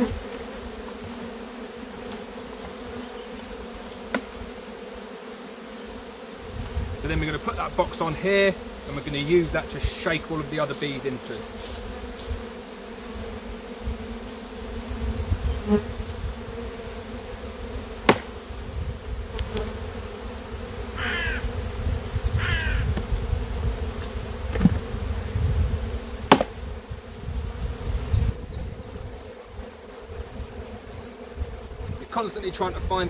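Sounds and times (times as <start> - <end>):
bees buzzing: 0.0 - 33.0
wooden hive boxes knocking: 4.1 - 4.4, 18.0 - 18.4, 22.4 - 23.2, 24.0 - 24.9, 26.2 - 26.6
short bird calls: 21.0 - 21.5, 22.3 - 22.9.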